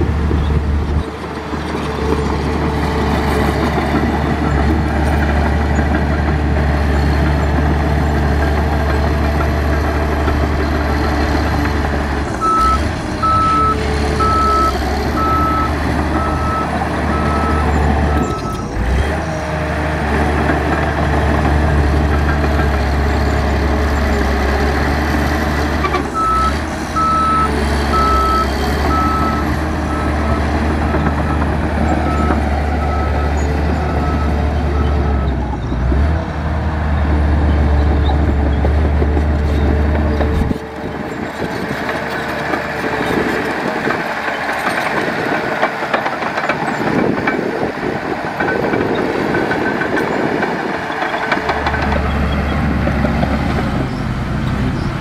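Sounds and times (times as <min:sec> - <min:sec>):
diesel engine running: 0:00.0 - 0:55.0
reversing alarm beeping: 0:12.4 - 0:18.7, 0:26.2 - 0:31.4.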